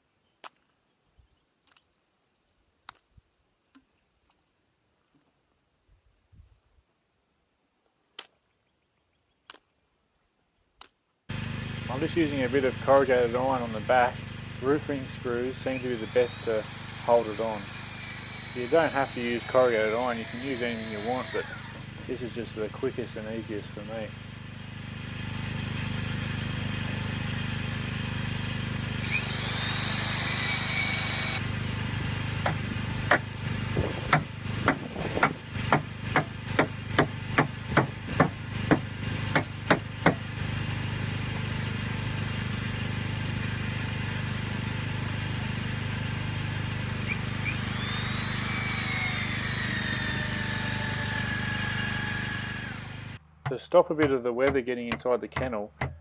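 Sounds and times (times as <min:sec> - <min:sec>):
low hum: 0:47.0 - 0:53.4.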